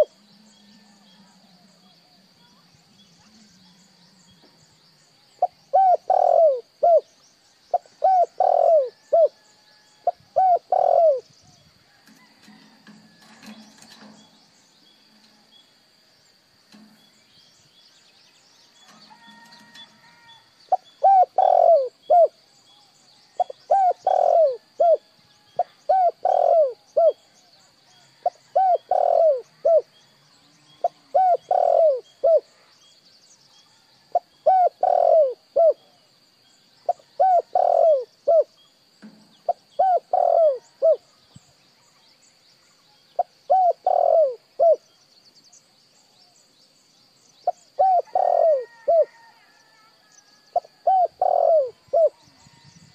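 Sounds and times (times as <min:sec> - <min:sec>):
dove cooing: 0:00.0 - 0:00.8, 0:05.4 - 0:07.1, 0:07.7 - 0:09.4, 0:10.0 - 0:11.2, 0:20.7 - 0:22.4, 0:23.4 - 0:27.2, 0:28.2 - 0:29.9, 0:30.8 - 0:32.5, 0:34.1 - 0:36.0, 0:36.9 - 0:38.5, 0:39.5 - 0:41.0, 0:43.2 - 0:44.8, 0:47.5 - 0:49.1, 0:50.6 - 0:52.3.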